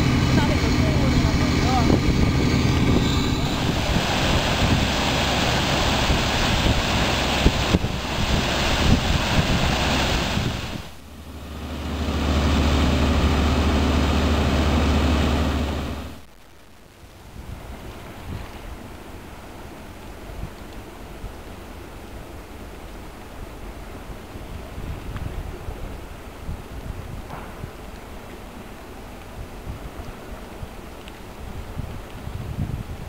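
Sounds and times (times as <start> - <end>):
slurry gushing from pipe: 0.0 - 11.0
deep rumble: 0.0 - 16.3.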